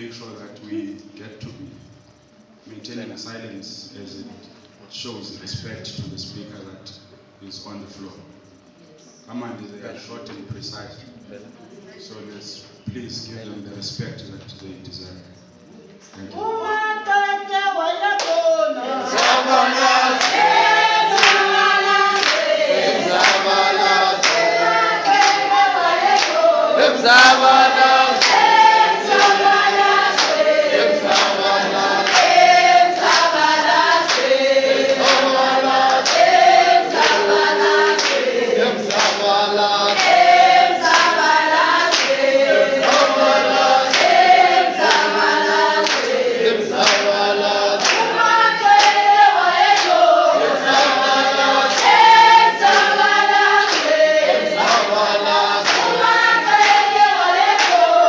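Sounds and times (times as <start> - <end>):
women singing together: 16.4 - 58.0
hand clapping: 18.2 - 18.4, 19.1 - 26.5, 27.1 - 47.2, 47.8 - 49.1, 49.7 - 50.0, 50.6 - 58.0.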